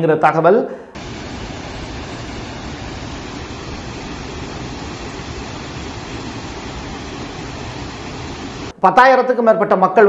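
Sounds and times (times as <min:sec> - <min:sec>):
floodwater rushing: 0:01.0 - 0:08.7.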